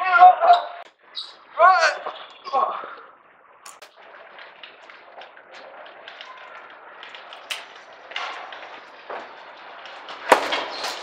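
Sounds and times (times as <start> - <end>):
faint background noise: 0.0 - 11.0
person falling onto tiled floor: 10.2 - 11.0.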